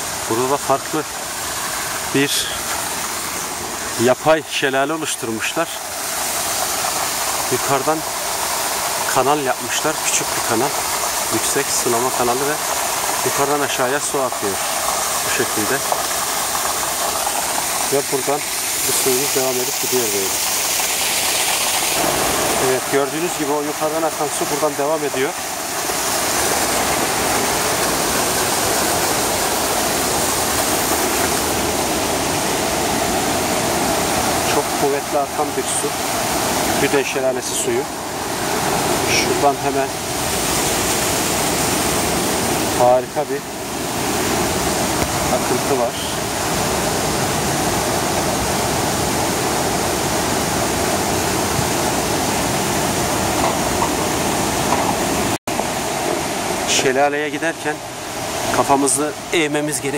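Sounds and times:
swift river rushing: 0.0s - 59.9s
small cascade splashing into basin: 5.9s - 37.9s.

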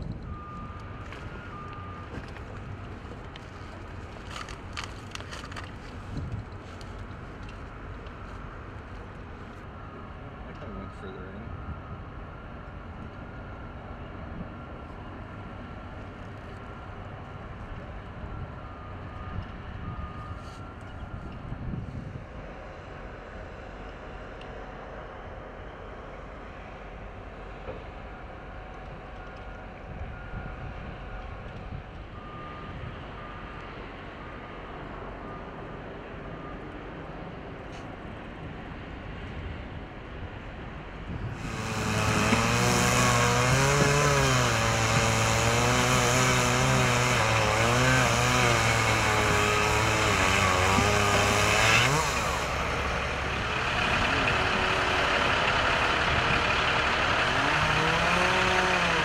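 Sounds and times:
heavy vehicle engine: 0.0s - 59.0s
low outdoor rumble: 50.8s - 59.0s.

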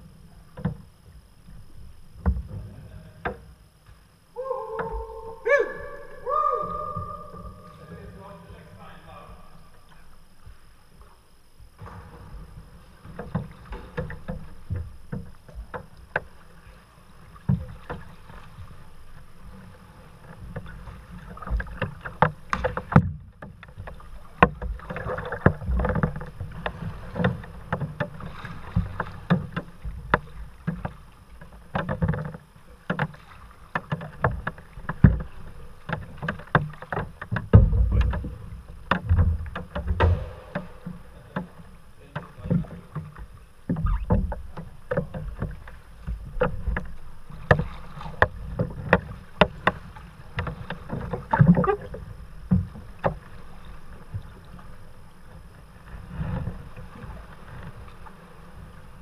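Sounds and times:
water splashing against kayak: 0.0s - 59.0s
low surging rumble: 37.6s - 43.0s.

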